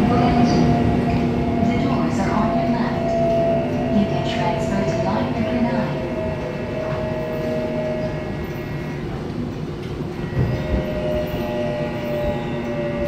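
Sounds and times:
subway wheels rumbling: 0:00.0 - 0:13.0.

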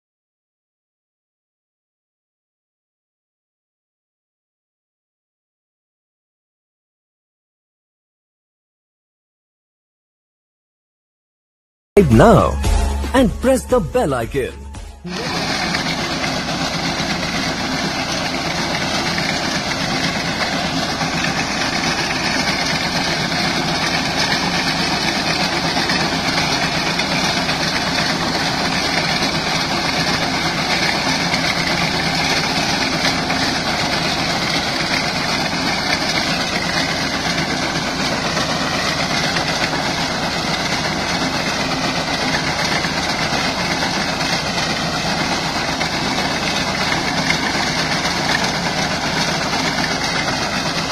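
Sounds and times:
tractor engine and reaper running: 0:12.2 - 0:50.9.

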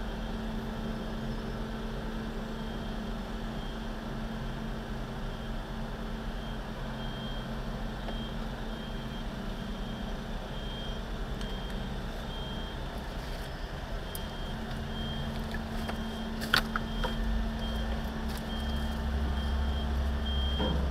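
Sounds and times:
diesel truck engine idling: 0:00.0 - 0:20.9
backup alarm beeping: 0:06.3 - 0:20.9
sharp bang: 0:20.5 - 0:20.9.

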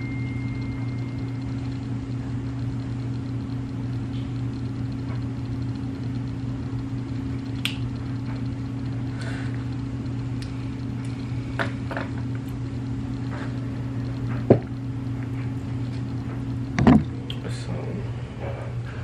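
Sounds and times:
steady low hum: 0:00.0 - 0:19.0
handling knocks and clicks: 0:16.8 - 0:17.1.

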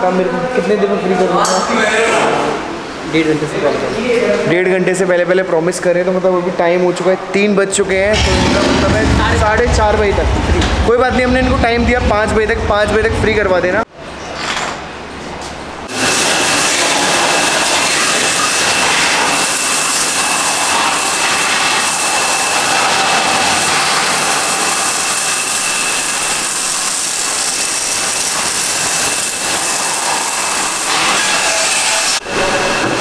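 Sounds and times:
pressure washer spraying: 0:15.9 - 0:32.2.

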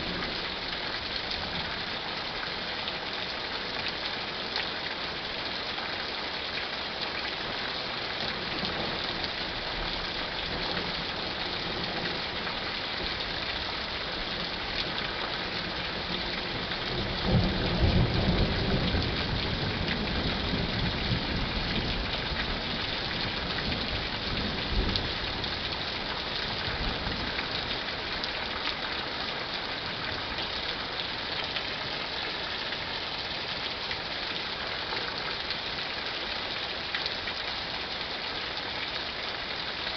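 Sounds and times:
steady rain falling: 0:00.0 - 0:39.9
rumble of thunder: 0:16.6 - 0:25.7.

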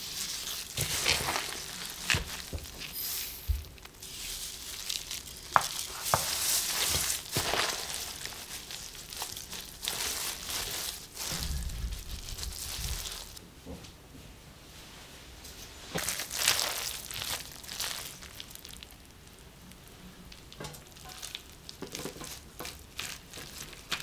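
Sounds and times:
leaves rustling and squishing: 0:00.0 - 0:13.4, 0:15.8 - 0:19.2, 0:19.8 - 0:24.0.

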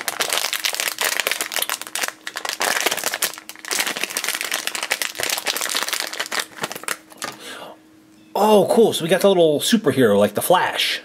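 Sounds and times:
foil pouch crinkling: 0:00.0 - 0:07.4.

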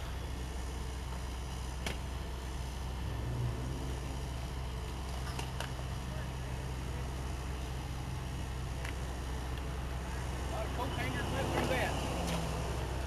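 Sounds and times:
diesel engine humming: 0:00.0 - 0:13.0.

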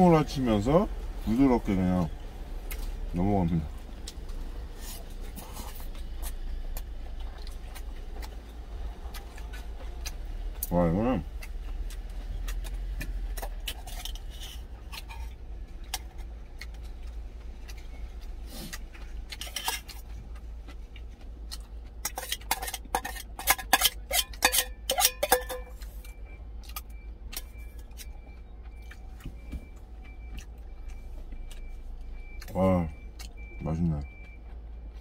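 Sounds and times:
utensils clinking on metal container: 0:22.1 - 0:25.8.

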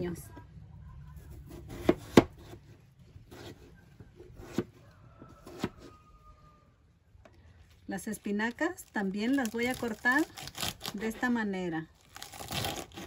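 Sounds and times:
knife chopping on cutting board: 0:01.5 - 0:02.6.

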